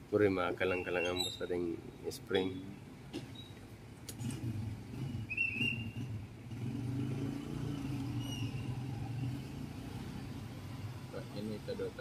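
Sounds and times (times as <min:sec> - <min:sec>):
high chirp: 0:00.7 - 0:01.5, 0:05.3 - 0:06.0.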